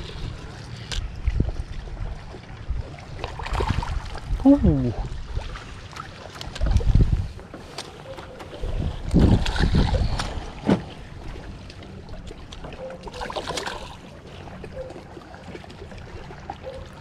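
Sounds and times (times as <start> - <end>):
water splashing by boat: 0.0 - 17.0
wind buffeting microphone: 6.5 - 7.5, 8.6 - 11.2.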